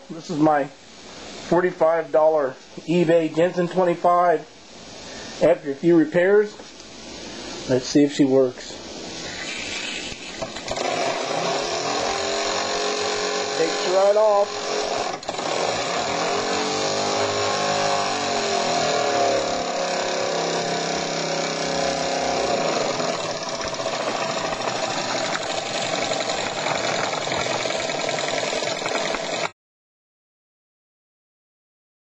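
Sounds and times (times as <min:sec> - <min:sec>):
toy steam engine whirring: 0:09.4 - 0:29.5.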